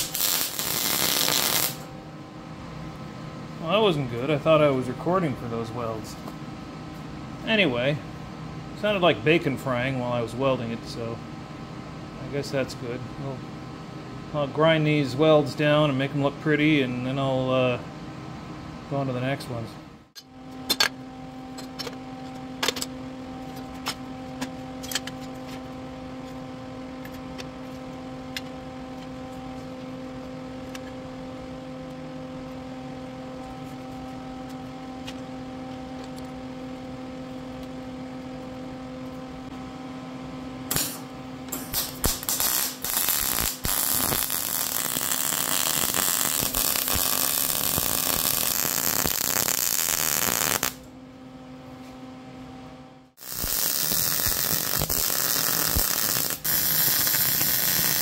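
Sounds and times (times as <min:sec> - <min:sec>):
welder arc crackling: 0:00.0 - 0:01.9, 0:40.7 - 0:50.8, 0:53.2 - 0:58.0
steady hum: 0:00.0 - 0:58.0.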